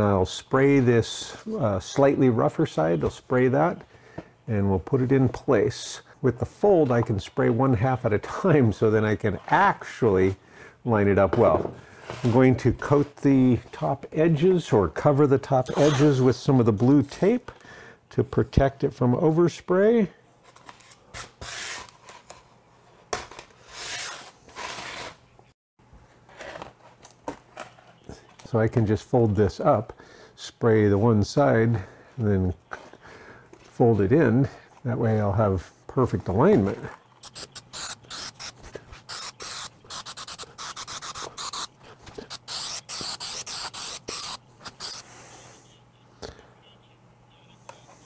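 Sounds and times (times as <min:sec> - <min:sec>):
tape rubbed down: 0:15.7 - 0:16.2, 0:37.2 - 0:45.1
aerosol can hissing: 0:37.2 - 0:41.7, 0:42.3 - 0:45.1.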